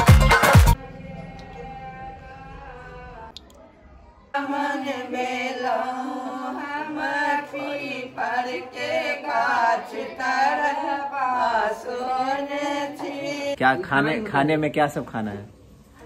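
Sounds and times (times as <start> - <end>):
women singing chant-like melody: 0.7 - 3.6, 4.3 - 13.6.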